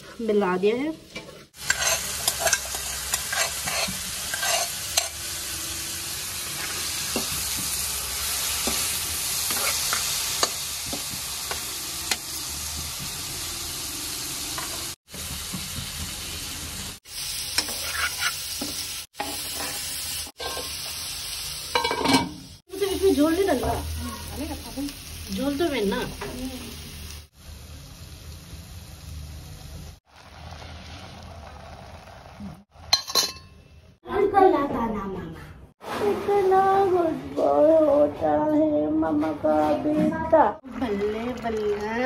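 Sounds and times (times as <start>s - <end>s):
steel spatula scraping a pan: 1.1s - 5.2s, 8.6s - 10.6s, 17.6s - 20.8s
fish frying with a sizzle: 1.5s - 32.7s.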